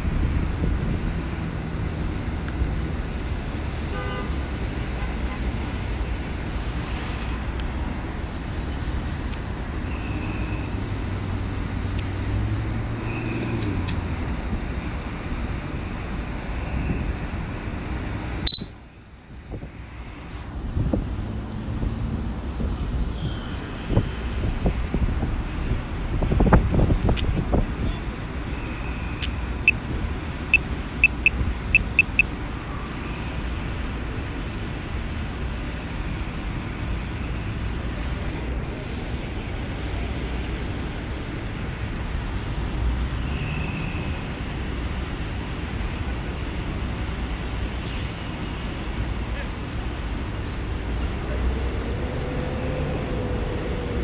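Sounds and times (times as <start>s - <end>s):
traffic rumble: 0.0s - 54.0s
wind: 0.0s - 54.0s
short high-pitched chirps: 18.5s - 18.7s.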